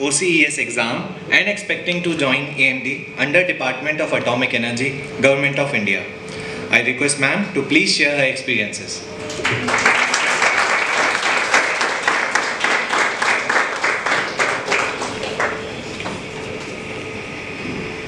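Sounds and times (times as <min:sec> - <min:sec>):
room hum: 0:00.0 - 0:18.0
audience applauding: 0:09.3 - 0:16.2.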